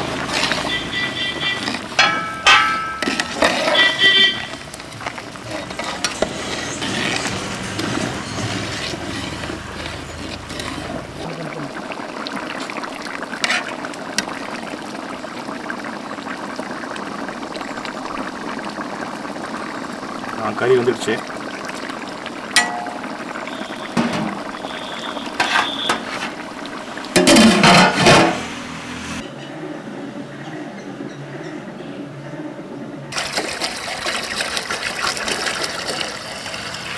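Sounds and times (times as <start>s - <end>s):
curry bubbling in a pot: 0.0s - 27.8s, 33.1s - 36.9s.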